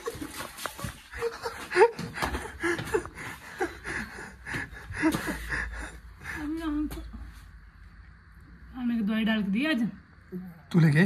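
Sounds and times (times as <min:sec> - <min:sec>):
breathy laughs: 0:00.0 - 0:06.0.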